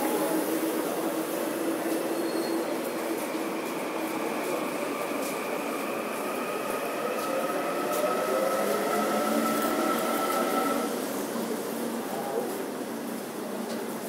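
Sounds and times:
train running noise: 0.0s - 14.0s
electric train motors whining: 3.4s - 11.0s.

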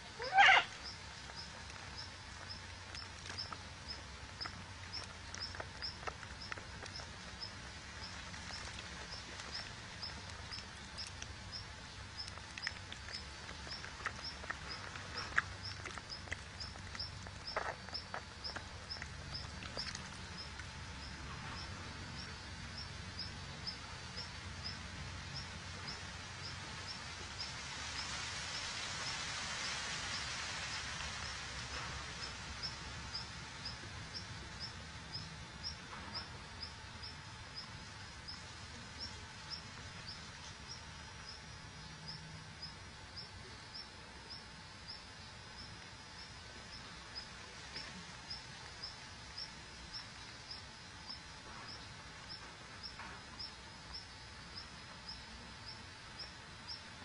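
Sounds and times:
hiss: 24.4s - 34.3s.

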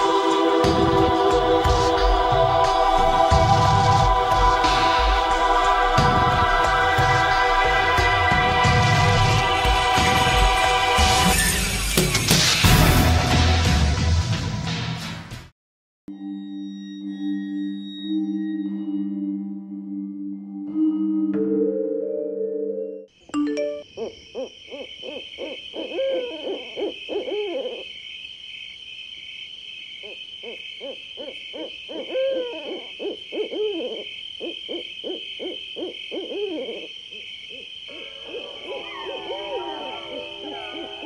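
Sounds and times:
owl hooting: 23.9s - 28.0s, 30.0s - 41.0s.

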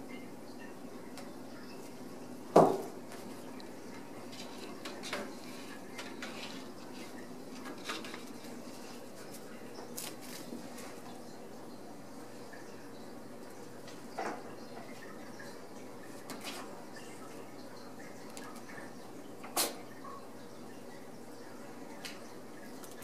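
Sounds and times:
low room hum: 0.0s - 23.0s.

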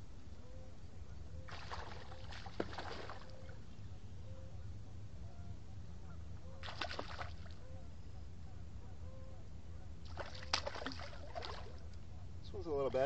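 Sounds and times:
sharp water slap: 1.5s - 3.2s, 6.6s - 7.4s, 10.1s - 11.8s
fish splashing in water: 1.5s - 3.4s, 6.6s - 7.6s, 10.1s - 11.9s.

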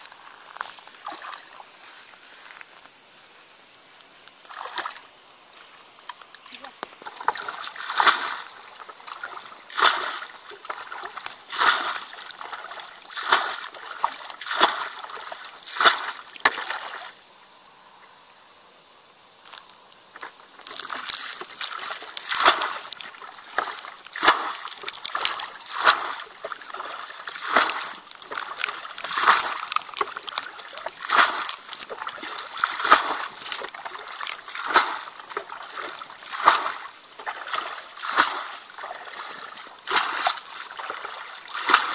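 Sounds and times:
bucket scooping water: 0.7s - 1.7s, 7.0s - 17.2s, 20.2s - 41.9s
thrown water splashing: 7.0s - 17.2s, 20.5s - 41.9s.

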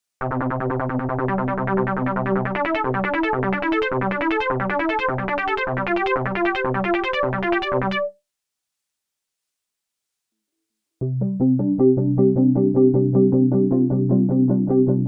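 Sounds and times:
synthesizer bass line: 0.2s - 8.1s, 11.0s - 15.0s.

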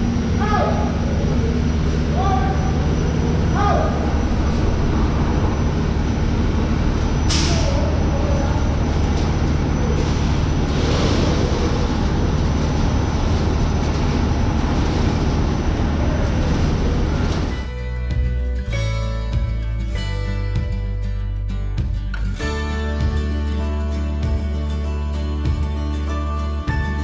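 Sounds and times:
machinery droning: 0.0s - 18.6s.

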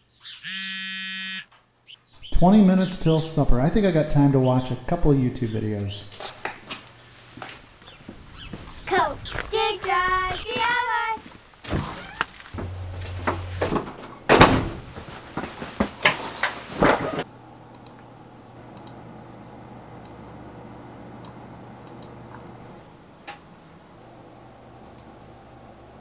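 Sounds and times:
room hum: 2.2s - 26.0s
wooden door opening and shutting: 11.7s - 15.0s
computer mouse clicks: 17.7s - 18.1s, 18.8s - 19.0s, 21.2s - 22.2s, 24.8s - 25.1s.

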